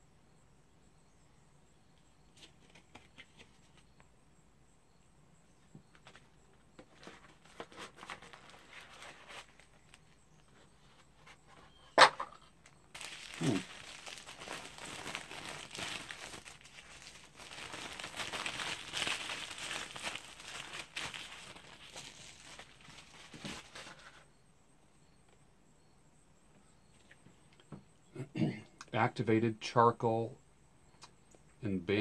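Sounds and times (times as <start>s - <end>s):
tissue paper crinkling: 6.9s - 10.2s, 12.9s - 24.2s.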